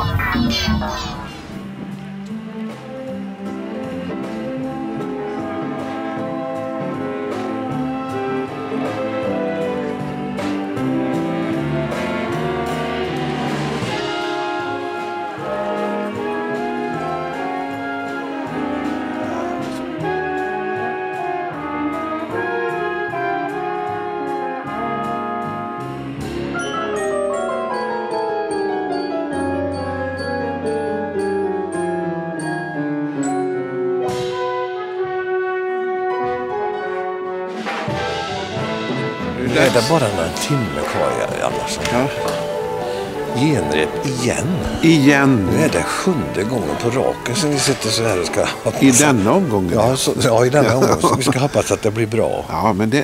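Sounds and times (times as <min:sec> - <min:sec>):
upbeat jazzy band with brass: 0:01.3 - 0:53.0.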